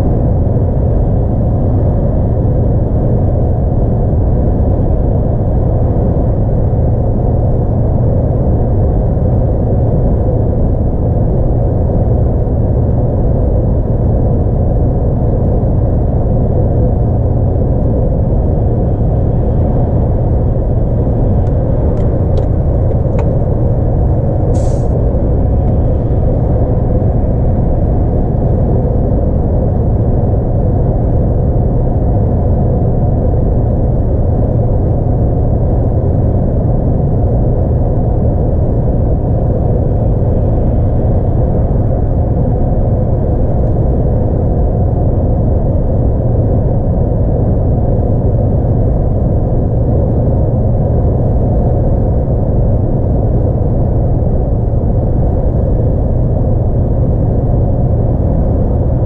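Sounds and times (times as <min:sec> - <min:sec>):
truck engine drone in cab: 0:00.0 - 0:59.0
compressed air hiss: 0:24.5 - 0:25.0.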